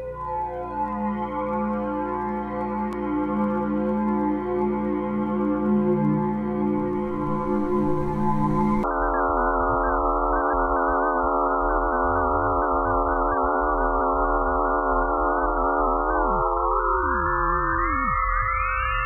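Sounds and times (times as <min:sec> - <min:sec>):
eerie electronic drone tones: 0:00.0 - 0:19.0.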